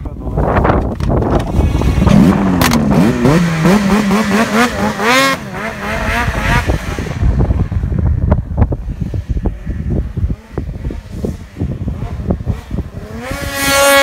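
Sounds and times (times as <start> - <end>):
wind on microphone: 0.0 - 14.0
snowmobile engine revving: 1.4 - 7.9, 8.7 - 14.0.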